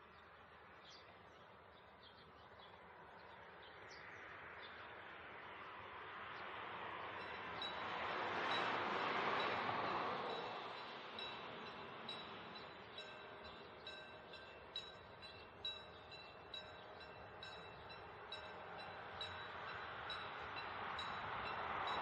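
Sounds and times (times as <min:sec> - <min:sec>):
railcar rumble: 0:04.7 - 0:22.0
level-crossing warning bell: 0:07.2 - 0:22.0.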